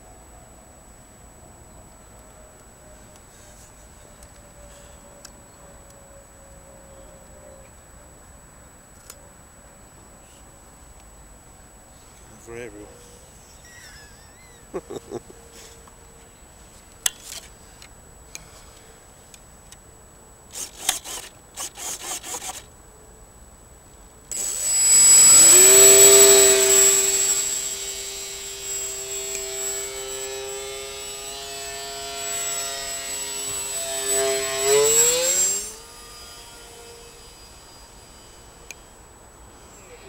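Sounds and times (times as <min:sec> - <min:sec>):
short rattling bursts: 0:20.5 - 0:22.7, 0:24.3 - 0:36.8
electric motor buzzing whine: 0:24.3 - 0:39.1.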